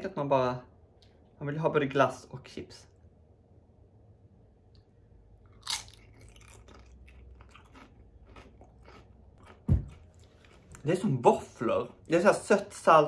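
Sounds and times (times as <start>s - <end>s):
chewing with small crunches: 4.8s - 11.0s
crisp chip crunch: 5.4s - 11.0s.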